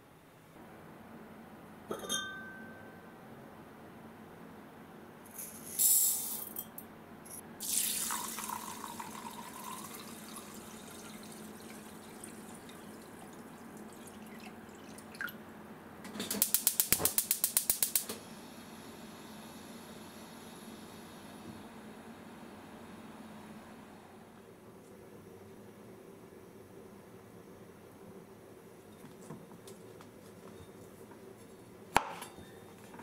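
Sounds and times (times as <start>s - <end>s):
water pouring onto rice: 7.6s - 15.3s.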